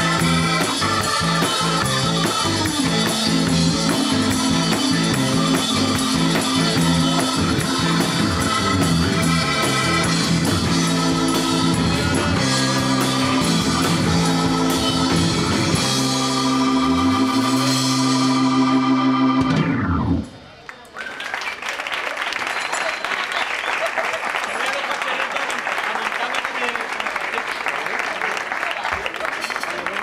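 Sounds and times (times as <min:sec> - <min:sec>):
drum kit: 0:00.0 - 0:20.2
rock band playing: 0:00.0 - 0:20.4.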